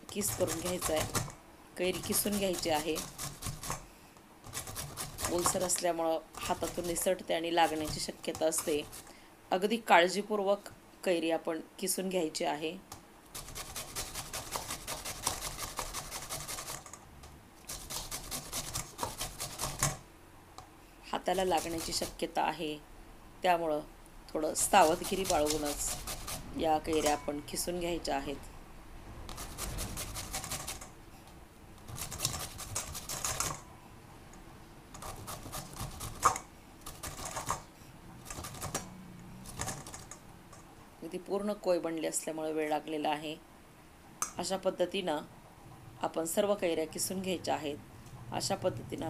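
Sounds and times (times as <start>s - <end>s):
mango rasping on a metal grater: 0.1s - 3.8s, 4.5s - 9.1s, 13.3s - 17.0s, 17.7s - 19.9s, 21.2s - 22.4s, 24.4s - 27.8s, 29.3s - 30.9s, 31.9s - 33.6s, 35.0s - 37.6s.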